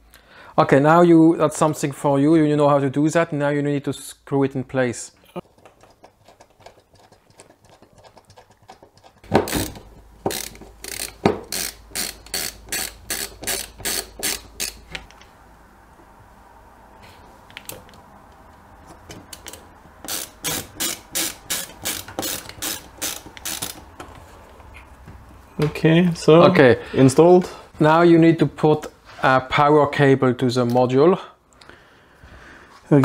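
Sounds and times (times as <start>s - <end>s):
hand screwdriver clicking: 9.5s - 14.8s, 19.2s - 23.9s.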